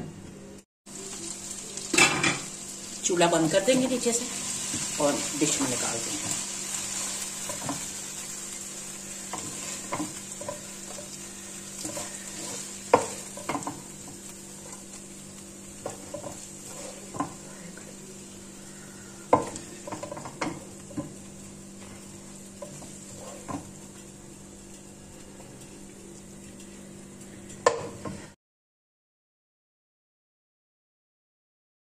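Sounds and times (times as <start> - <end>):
faint sizzle: 0.4 - 28.4
steady low hum: 4.0 - 28.4
wooden spatula scraping a pan: 9.2 - 15.0, 15.8 - 17.8, 21.8 - 23.8.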